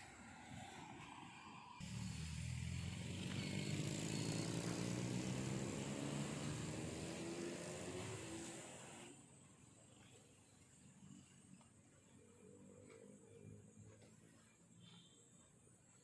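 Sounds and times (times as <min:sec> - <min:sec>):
car engine accelerating past: 0:01.8 - 0:09.2.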